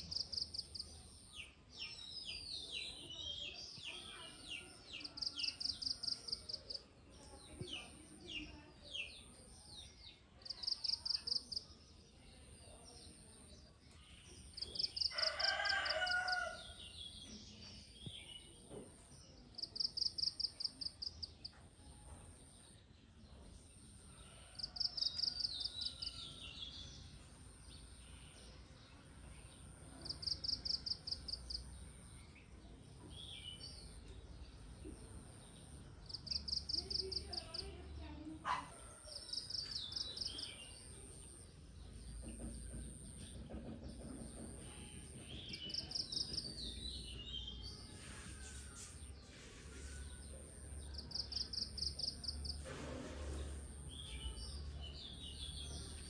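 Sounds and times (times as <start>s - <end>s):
rooster crowing: 15.1s - 16.6s.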